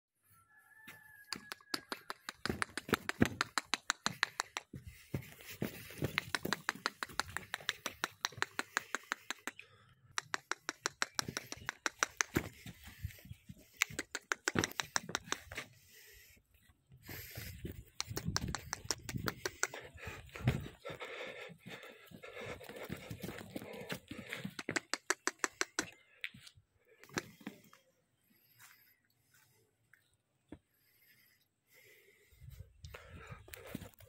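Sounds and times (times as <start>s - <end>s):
rapid sharp clicks: 1.4s - 4.8s, 5.7s - 12.8s, 13.7s - 15.6s, 17.7s - 21.0s, 22.3s - 26.0s.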